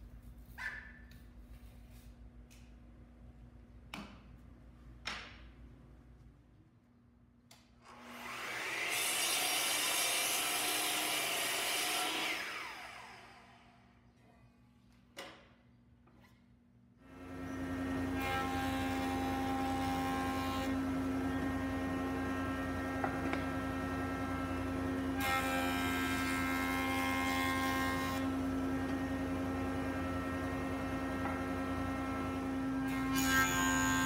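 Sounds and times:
woodworking machine motor humming: 17.1s - 34.0s.

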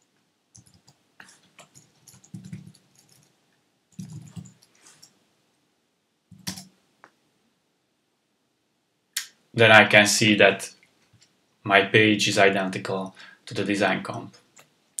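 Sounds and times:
keyboard typing: 0.5s - 3.3s, 3.9s - 5.1s, 6.3s - 6.7s.

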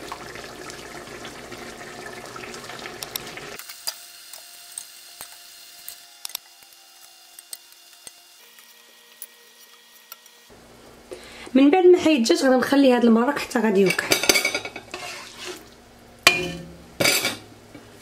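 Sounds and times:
broth bubbling in a pot: 0.0s - 3.6s.

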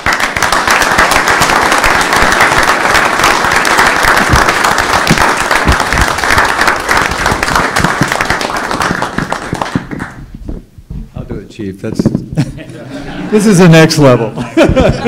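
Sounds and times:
audience applauding: 0.0s - 10.2s.

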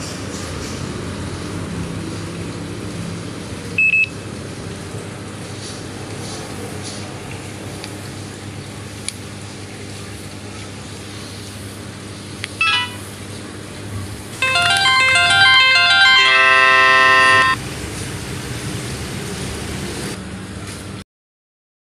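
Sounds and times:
phone electronic jingle: 12.6s - 13.1s, 14.4s - 17.6s
phone short beeps: 12.6s - 13.1s.

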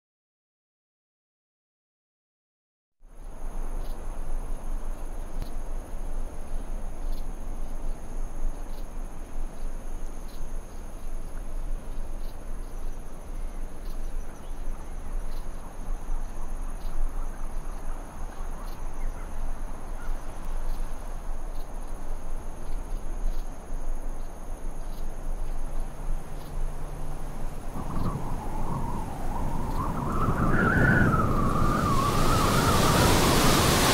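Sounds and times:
high-pitched insect trill: 3.5s - 33.9s
wind blowing: 26.0s - 33.9s.

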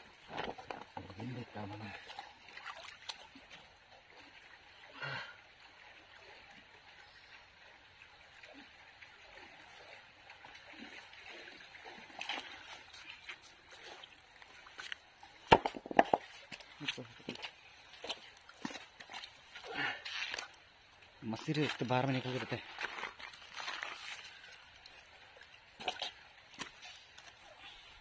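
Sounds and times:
stream trickling over stones: 0.0s - 28.0s
knocks on wet rocks: 15.4s - 16.7s.

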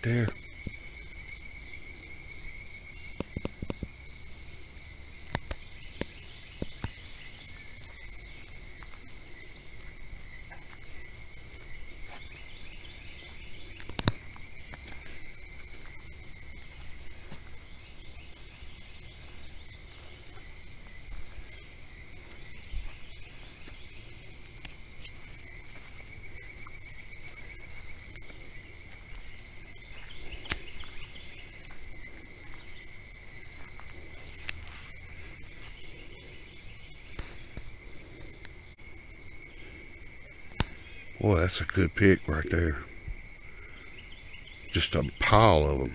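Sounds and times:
insects trilling: 0.0s - 45.9s.

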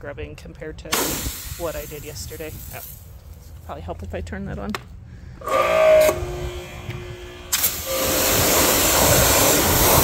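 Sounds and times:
hose spraying water on concrete: 7.5s - 10.0s.

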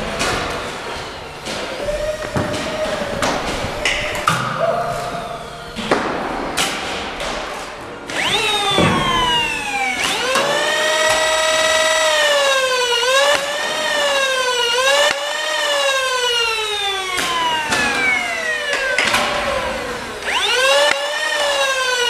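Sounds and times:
dart blaster flywheel whine: 8.1s - 22.0s.

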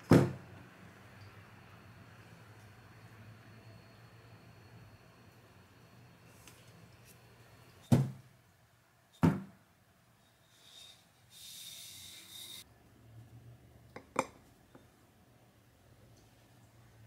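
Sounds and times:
short hiss: 10.5s - 12.6s.

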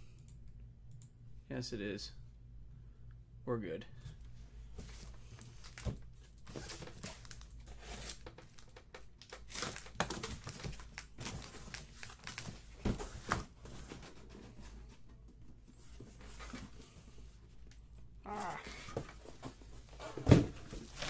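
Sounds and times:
boxes rustling and scraping: 4.4s - 8.8s, 9.5s - 17.6s, 18.7s - 21.0s.

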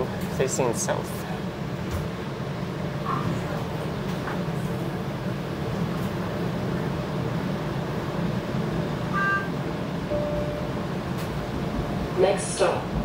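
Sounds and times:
streetcar cabin hum: 0.0s - 13.0s
electronic beep: 9.1s - 9.5s, 10.1s - 10.7s
short low tone: 9.1s - 10.8s.

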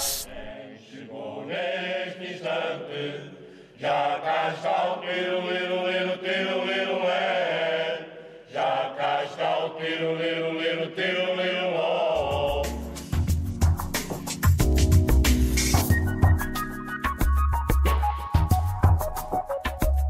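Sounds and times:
mixed choir singing unaccompanied: 0.0s - 13.0s.

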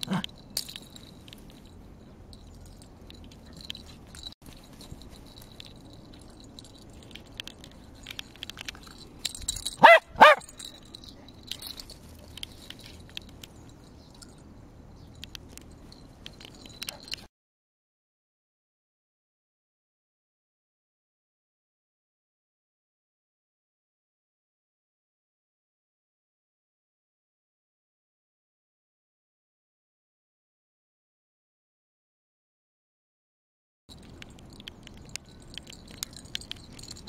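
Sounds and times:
small dog barking: 0.0s - 0.3s, 9.8s - 10.6s
faint rustles and ticks: 0.0s - 17.3s, 33.9s - 37.0s.

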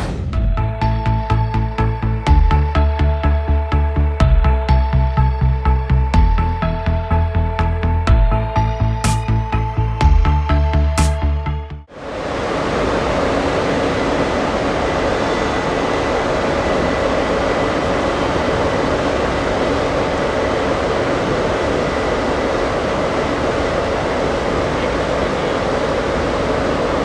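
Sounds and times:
faint constant whine: 11.9s - 27.0s
train running: 12.0s - 27.0s.

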